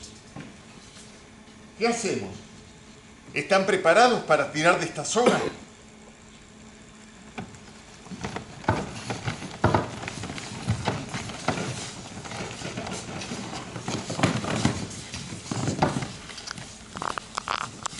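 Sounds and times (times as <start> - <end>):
crowd footsteps on stage floor: 7.3 - 17.9.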